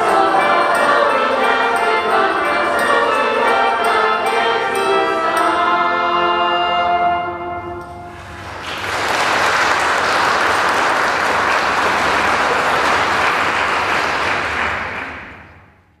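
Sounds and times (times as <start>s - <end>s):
audience applauding: 8.1s - 15.7s.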